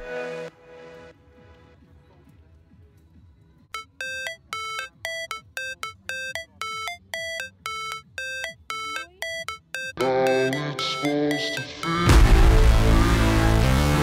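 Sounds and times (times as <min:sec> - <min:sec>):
simple melody of clipped notes: 0:03.8 - 0:12.6.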